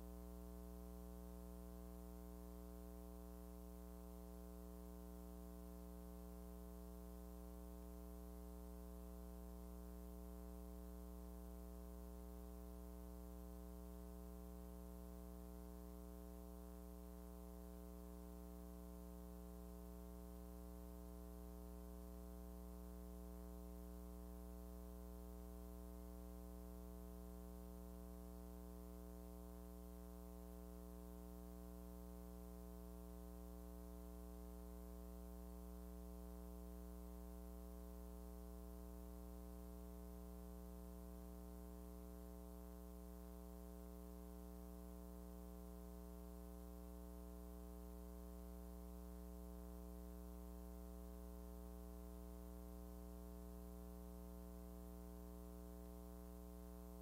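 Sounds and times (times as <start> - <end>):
faint electrical hum: 0.0 - 57.0.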